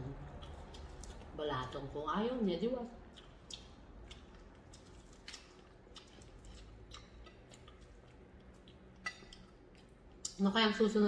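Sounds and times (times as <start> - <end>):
chewing fried chicken: 0.0 - 2.0, 2.9 - 10.4
small mouth and finger clicks: 3.2 - 7.7.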